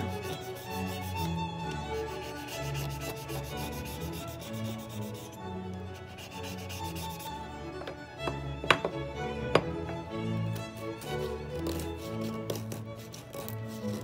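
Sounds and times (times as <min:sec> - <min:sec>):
razor blade scraping cane: 0:00.0 - 0:05.4, 0:06.0 - 0:07.4, 0:10.5 - 0:14.0.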